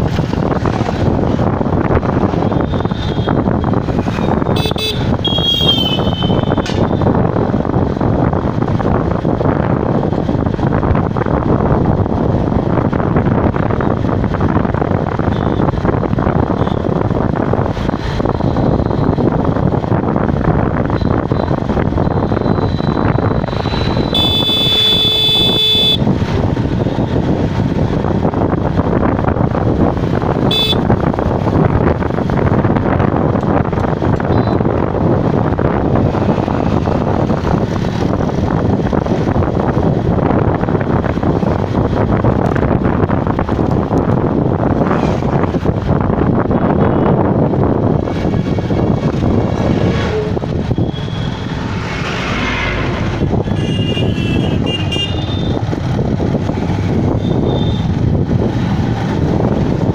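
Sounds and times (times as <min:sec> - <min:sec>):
vehicle road noise: 0:00.0 - 0:59.9
wind buffeting microphone: 0:00.0 - 0:59.9
vehicle horn blaring: 0:04.6 - 0:06.7, 0:24.1 - 0:26.0, 0:30.5 - 0:30.8, 0:53.5 - 0:55.6.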